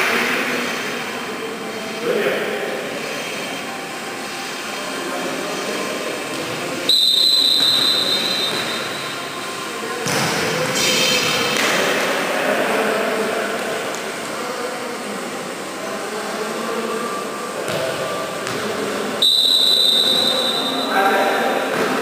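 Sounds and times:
hubbub of players' voices: 0.0 - 22.0
referee's whistle: 6.9 - 9.2, 19.2 - 21.0.

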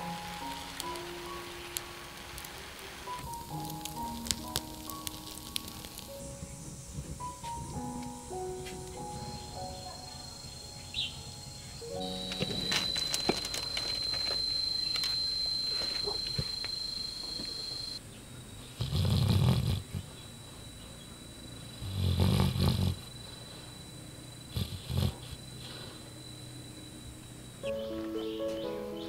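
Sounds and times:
dog snoring: 18.7 - 20.3, 21.6 - 23.4, 24.5 - 26.1.

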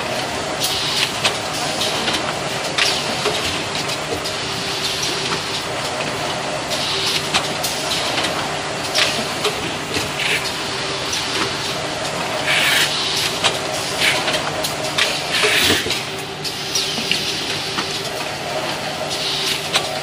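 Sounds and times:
short pneumatic hisses: 12.5 - 13.2, 15.3 - 15.8.

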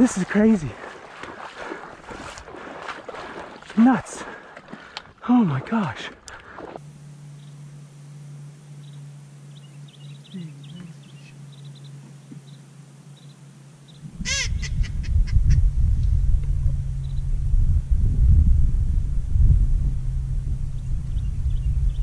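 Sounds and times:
ducks peeping and whistling: 13.2 - 15.6
low rumble: 14.0 - 22.0.

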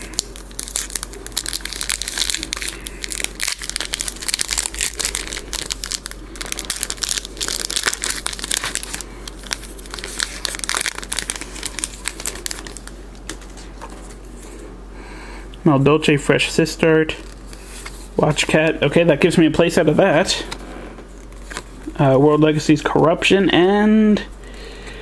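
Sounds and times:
foil wrapper crinkling: 0.0 - 14.3.

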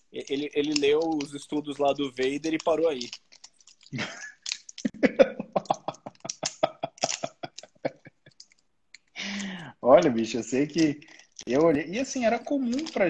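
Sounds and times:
man laughing: 4.0 - 8.4.

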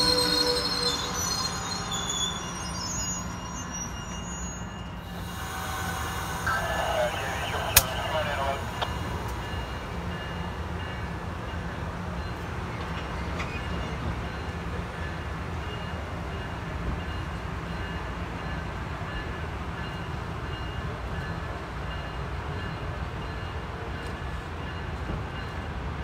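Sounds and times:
train rumbling slowly: 0.0 - 26.0
faint high tones: 5.4 - 9.7.

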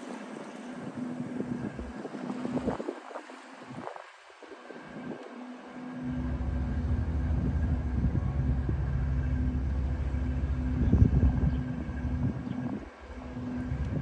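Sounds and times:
boat diesel engine rumbling: 4.8 - 14.0.

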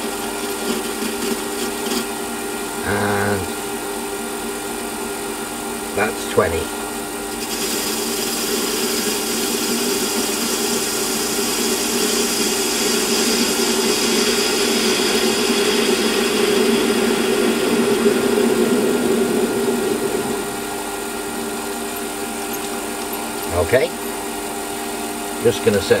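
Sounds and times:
metal lathe cutting: 0.0 - 2.2, 7.3 - 24.8.

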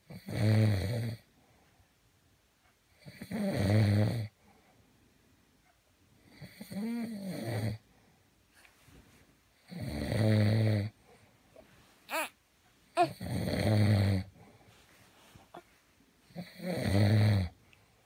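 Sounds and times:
man snoring: 0.1 - 1.2, 3.0 - 4.3, 9.7 - 10.9, 13.0 - 14.3, 16.3 - 17.6.

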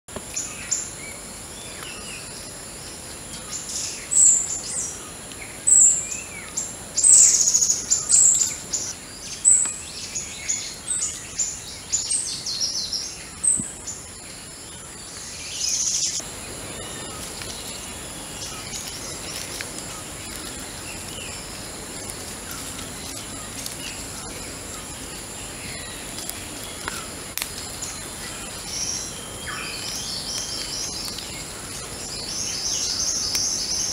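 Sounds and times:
birds chirping: 0.2 - 33.9.

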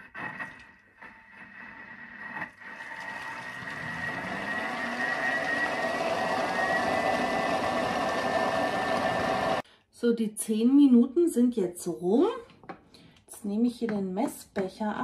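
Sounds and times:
blender motor whirring: 0.0 - 9.6.

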